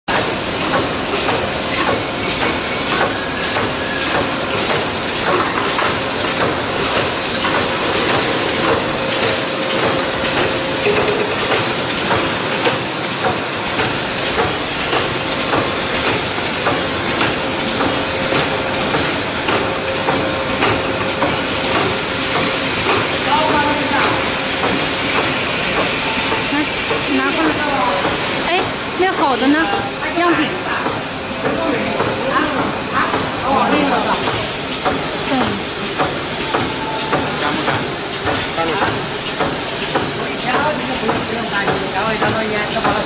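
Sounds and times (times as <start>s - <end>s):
machine hum: 0.1s - 43.0s.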